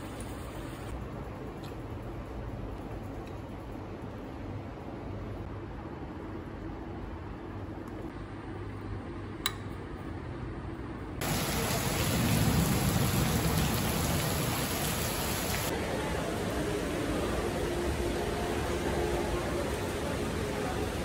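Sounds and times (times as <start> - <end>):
heavy rain on paving: 11.2 - 21.0.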